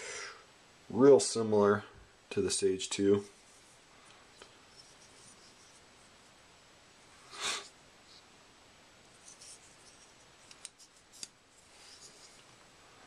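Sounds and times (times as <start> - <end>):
knife handling rustle: 3.0 - 6.1, 9.1 - 12.5.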